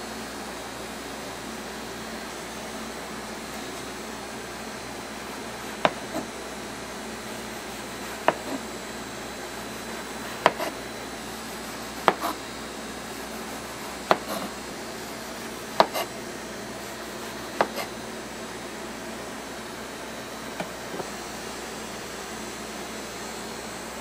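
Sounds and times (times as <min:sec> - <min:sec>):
knife knocking on cutting board: 0:05.8 - 0:06.2, 0:12.0 - 0:12.3.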